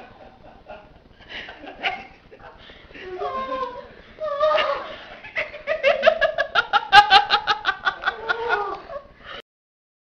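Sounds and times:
person laughing: 0:01.3 - 0:09.1.

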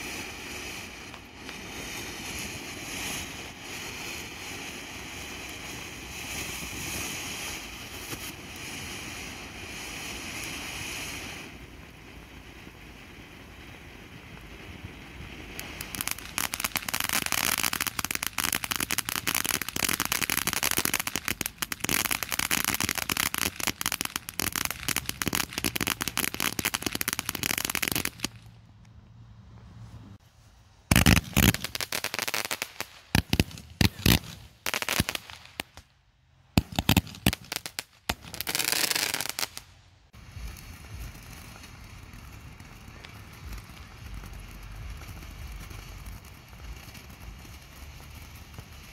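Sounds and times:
firework fountain hissing: 0:00.0 - 0:28.5, 0:30.8 - 0:35.9, 0:36.6 - 0:48.9
firework pops and bangs: 0:00.0 - 0:28.6, 0:30.9 - 0:48.9
firework fountain crackling: 0:00.0 - 0:28.7, 0:30.4 - 0:48.9.

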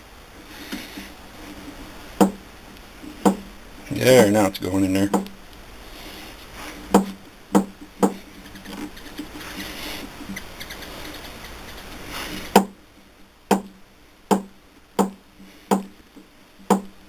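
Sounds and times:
sharp metallic knocks: 0:02.2 - 0:02.4, 0:03.2 - 0:03.5, 0:06.9 - 0:08.2, 0:14.3 - 0:15.9, 0:16.7 - 0:16.9.

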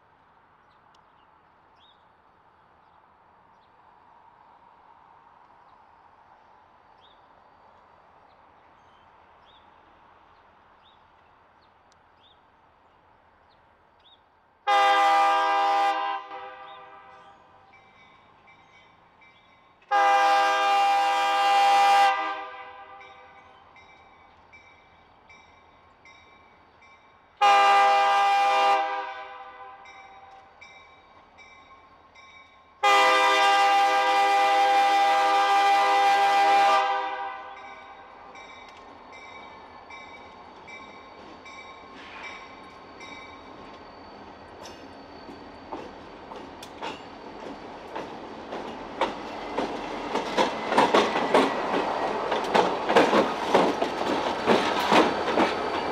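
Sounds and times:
locomotive air horn blasts: 0:14.7 - 0:17.3, 0:19.9 - 0:23.3, 0:27.4 - 0:30.0, 0:32.8 - 0:37.8.

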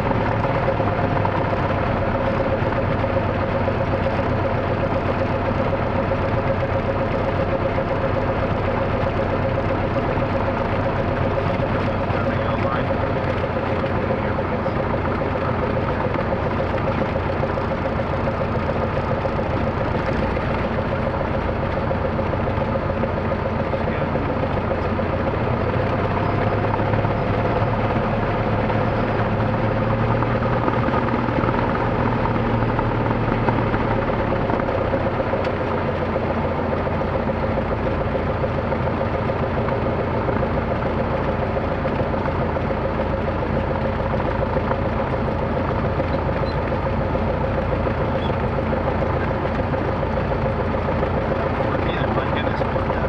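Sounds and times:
light aircraft engine droning: 0:00.0 - 0:53.0.

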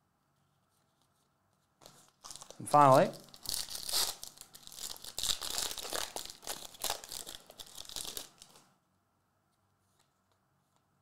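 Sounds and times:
foil wrapper tearing and crinkling: 0:02.1 - 0:08.6.

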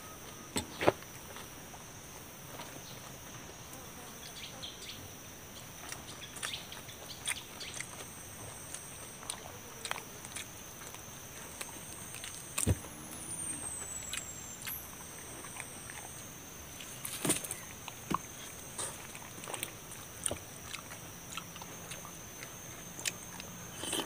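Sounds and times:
faint high-pitched tone: 0:00.0 - 0:00.8, 0:12.6 - 0:17.8.

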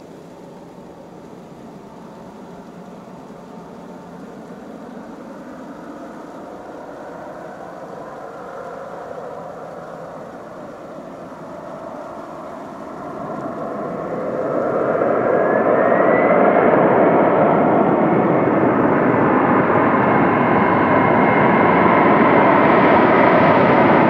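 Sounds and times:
jet engines rumble and whine: 0:00.0 - 0:24.0.

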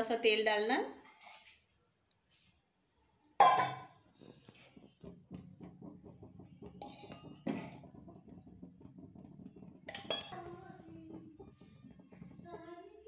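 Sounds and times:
metal spoon scraping metal pan: 0:01.0 - 0:01.6, 0:06.8 - 0:07.9, 0:09.9 - 0:10.5.

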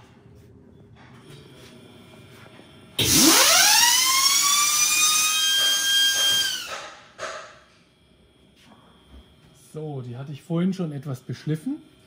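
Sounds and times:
turbocharger whine: 0:01.8 - 0:07.1.

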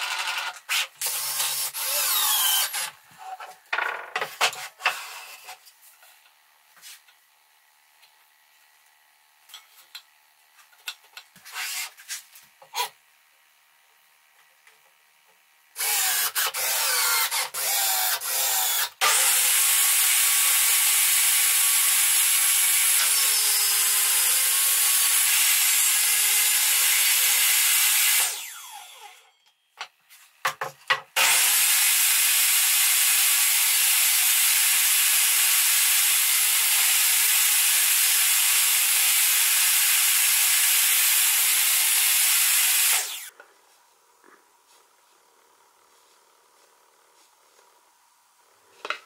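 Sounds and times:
table saw cutting boards: 0:00.0 - 0:05.6, 0:15.8 - 0:29.3, 0:30.4 - 0:43.4.

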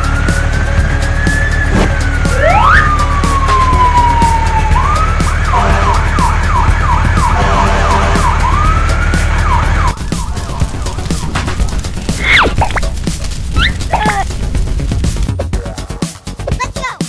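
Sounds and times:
emergency vehicle siren: 0:00.0 - 0:12.3
low rumble: 0:08.5 - 0:15.6.

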